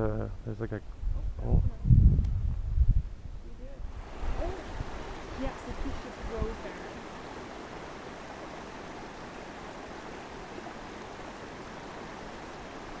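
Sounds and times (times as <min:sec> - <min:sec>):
creek water running: 0:03.6 - 0:13.0.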